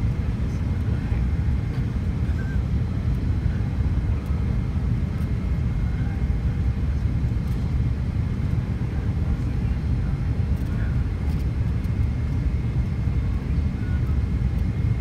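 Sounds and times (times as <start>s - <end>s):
jet engines rumbling: 0.0s - 15.0s.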